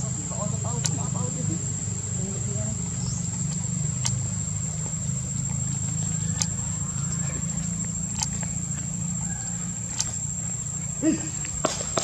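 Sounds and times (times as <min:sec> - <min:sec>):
high-pitched insect trill: 0:00.0 - 0:12.0
low engine hum: 0:00.0 - 0:12.0
sharp clicks: 0:00.7 - 0:01.0, 0:03.2 - 0:08.8, 0:09.9 - 0:10.3.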